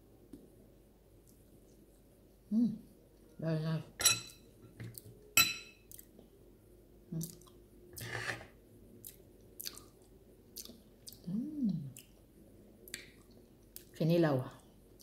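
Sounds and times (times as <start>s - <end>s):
person humming: 2.5s - 2.9s, 11.2s - 12.0s
chewing and lip smacks: 9.0s - 12.2s, 12.8s - 13.9s.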